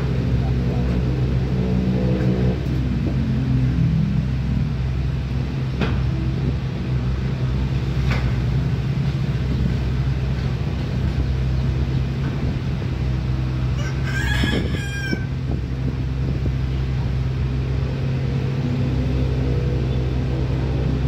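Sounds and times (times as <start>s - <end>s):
diesel engine droning: 0.0s - 21.0s.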